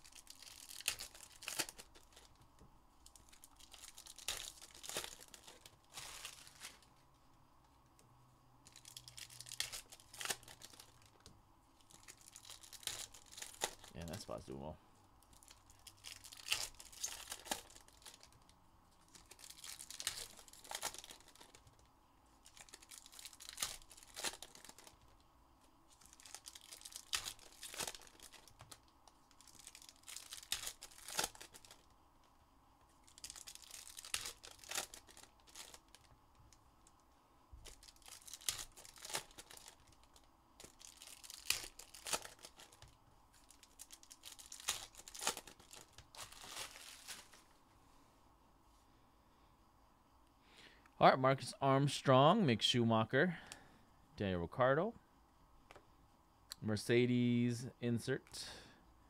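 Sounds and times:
wrappers tearing and crinkling: 0.0 - 2.4, 3.0 - 6.9, 8.6 - 14.4, 15.3 - 25.2, 25.9 - 31.9, 33.0 - 36.1, 37.6 - 47.5.

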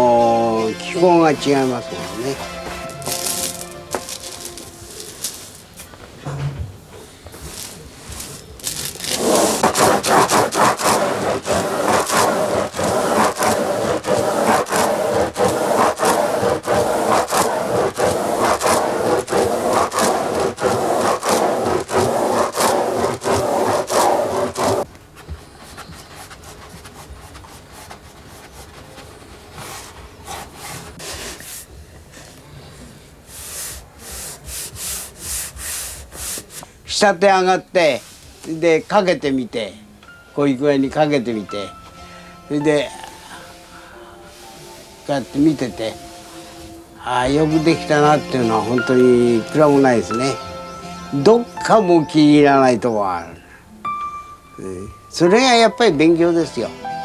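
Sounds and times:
faint paper rubbing: 1.4 - 5.8, 7.4 - 36.6
beads scraping on paper: 1.6 - 5.8, 7.3 - 31.7.

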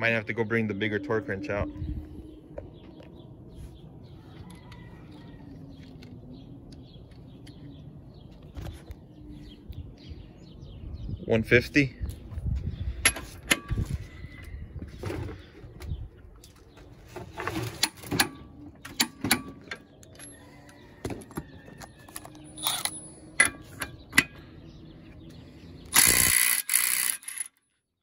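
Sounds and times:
metal tools clicking and knocking: 17.8 - 24.4.

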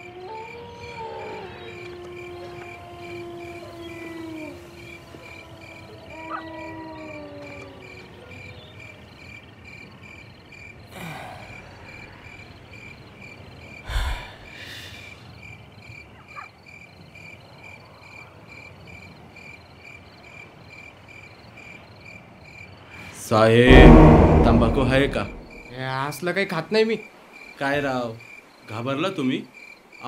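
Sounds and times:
crickets chirping: 0.0 - 23.1, 26.9 - 30.0
short rush of noise: 23.7 - 25.8.

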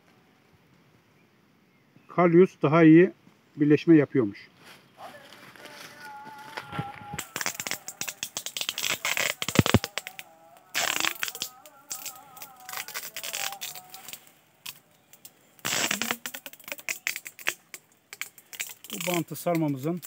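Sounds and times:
plastic tape crinkling: 5.1 - 20.0.

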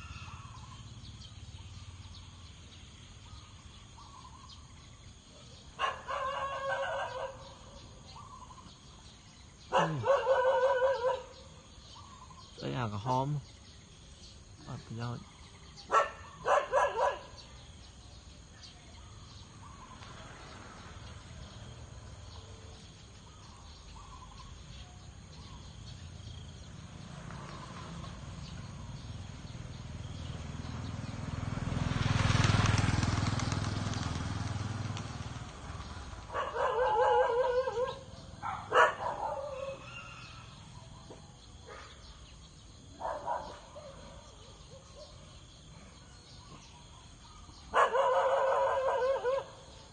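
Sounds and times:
vehicle passing: 0.0 - 12.0, 19.1 - 49.9.

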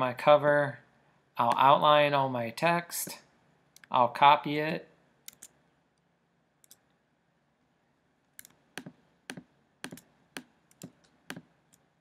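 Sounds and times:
mouse or keyboard clicks: 8.4 - 11.8.

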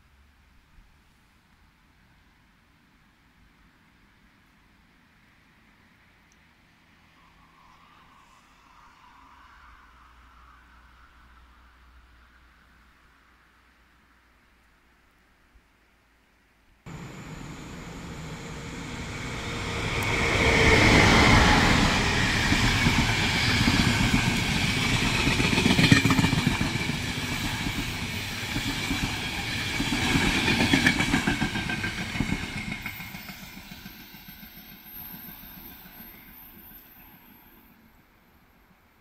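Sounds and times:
train wheels clattering on rails: 16.9 - 36.6
train coaches rushing by: 16.9 - 37.9.

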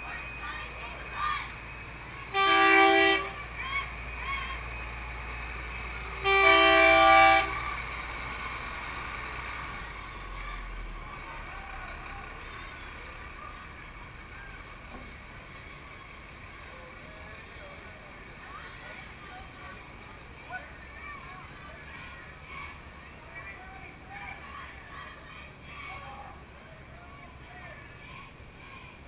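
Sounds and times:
truck engine rumble: 0.0 - 29.0
truck horn blasts: 2.2 - 3.4, 6.0 - 7.7.

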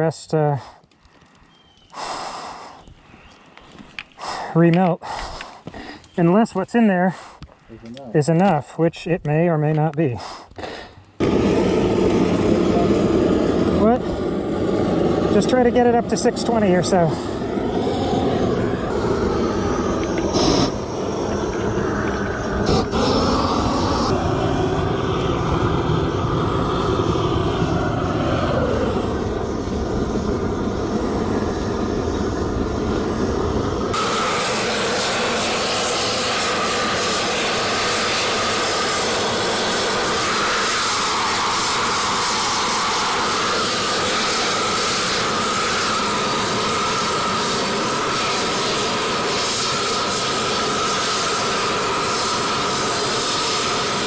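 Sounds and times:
gas burner roaring: 0.0 - 8.7, 9.7 - 54.0
molten metal pouring hiss: 11.2 - 54.0.

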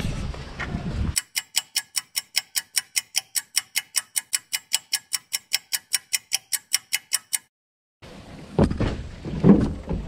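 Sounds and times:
fast clock ticking: 1.2 - 7.5.

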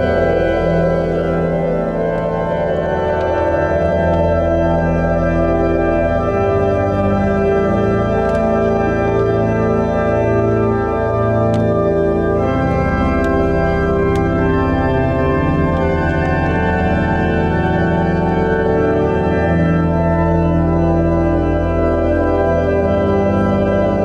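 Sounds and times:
church organ chords: 0.0 - 24.0.

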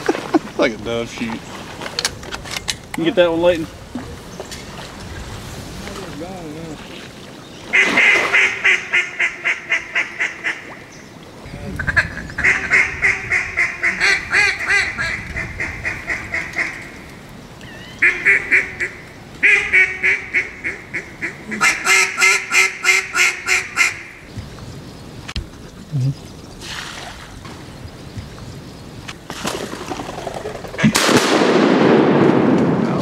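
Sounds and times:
duck call quacking: 7.7 - 10.6, 18.0 - 24.1.

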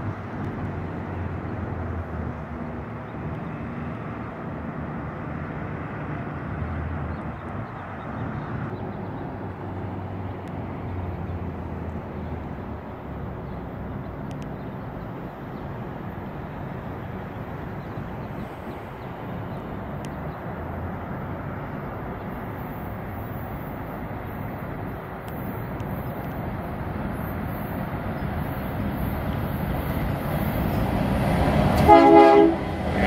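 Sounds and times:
distant train: 0.0 - 33.0
road traffic rumble: 0.0 - 33.0.

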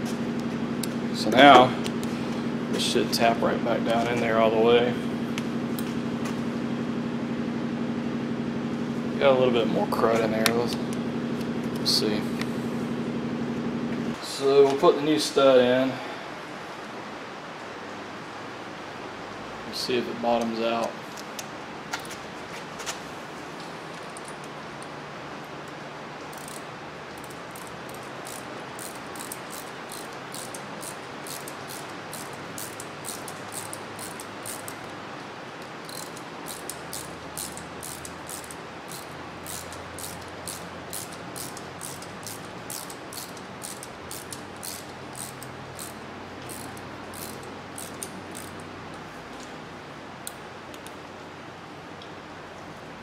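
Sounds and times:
hand ratchet clicking: 26.3 - 34.9, 35.8 - 48.7.

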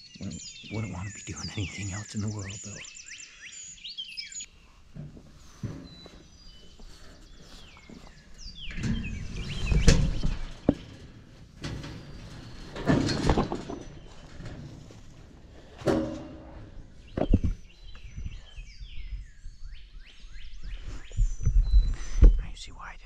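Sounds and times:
songbirds chirping: 0.0 - 23.0
wire fence creaking and knocking: 4.8 - 17.7
scraping and thumps: 4.9 - 18.0.

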